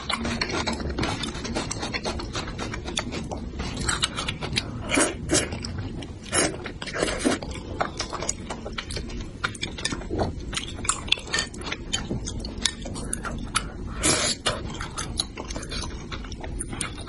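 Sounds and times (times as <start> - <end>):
person chewing and lip-smacking: 0.0 - 17.0
person slurping: 13.9 - 14.8.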